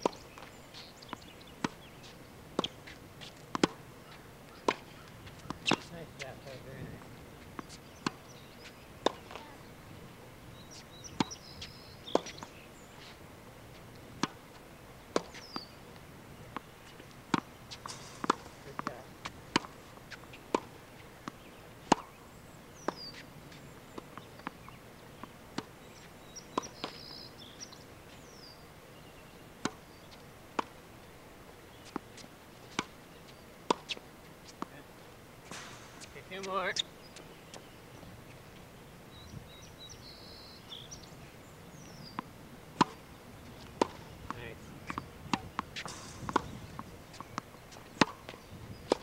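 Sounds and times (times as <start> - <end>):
tennis balls hit by racket: 0.0 - 28.5, 29.3 - 30.8, 31.5 - 39.6, 41.8 - 49.0
balls bouncing on hard court: 2.6 - 7.0, 16.6 - 22.1, 35.4 - 37.6, 43.6 - 49.0
bird chirps: 10.5 - 13.1, 15.3 - 15.8, 21.4 - 30.2, 39.1 - 42.2.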